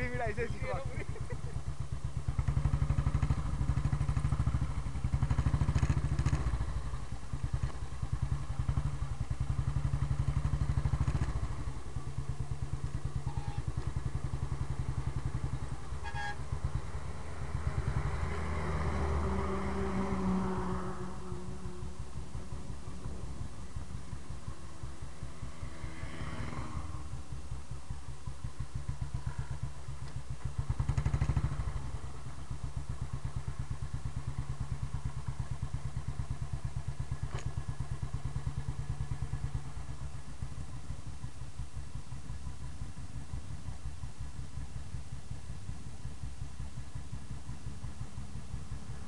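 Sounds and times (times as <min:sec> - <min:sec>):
motorcycle engine thumping: 0:34.6 - 0:38.3.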